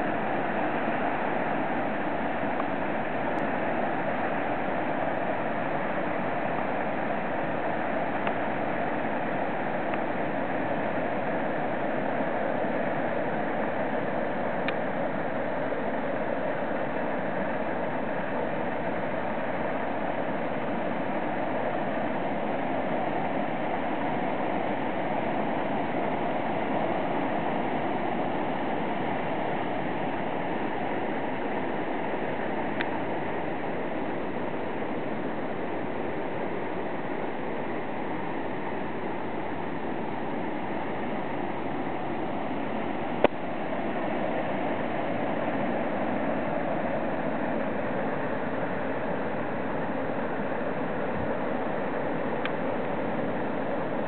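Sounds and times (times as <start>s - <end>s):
distant river rushing: 0.0s - 54.0s.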